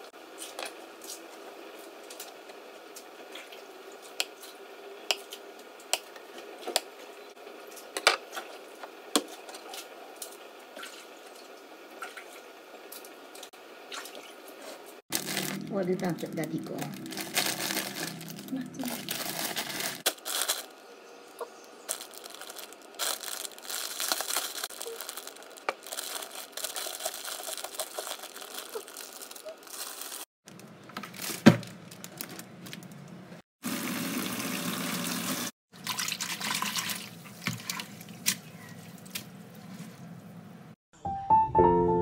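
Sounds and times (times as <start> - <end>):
plastic packaging rustling: 15.1 - 33.1
tap water running: 33.6 - 40.0
water splashing in a bowl: 33.7 - 40.0.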